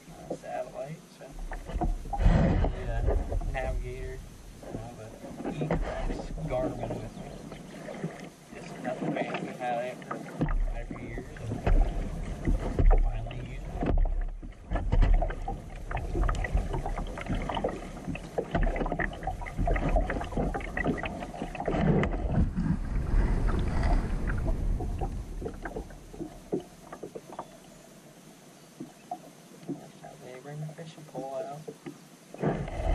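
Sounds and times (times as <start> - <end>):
paddle strokes in water: 0.0 - 32.9
low rumble: 1.3 - 7.3, 21.9 - 26.9
knocks against kayak hull: 11.4 - 13.1, 13.7 - 17.0, 18.1 - 21.0.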